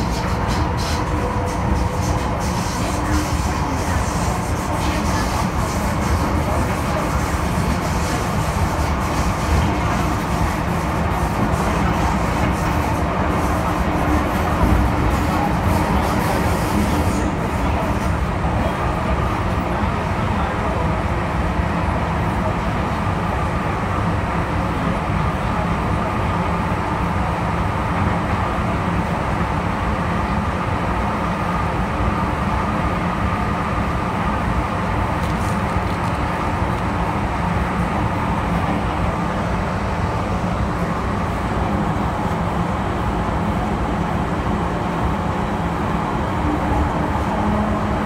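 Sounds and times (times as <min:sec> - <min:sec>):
train rumbling in tunnel: 0:00.0 - 0:48.0.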